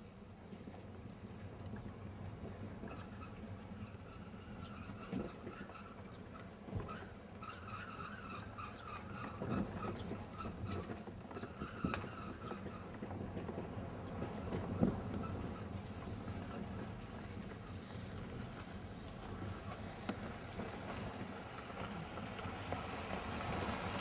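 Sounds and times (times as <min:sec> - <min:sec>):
road and engine noise: 0:00.0 - 0:24.0
short high squeaks: 0:02.9 - 0:10.8.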